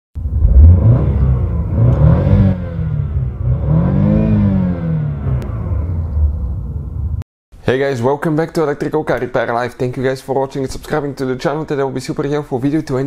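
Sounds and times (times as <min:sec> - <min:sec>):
car engine revving: 0:00.2 - 0:07.2.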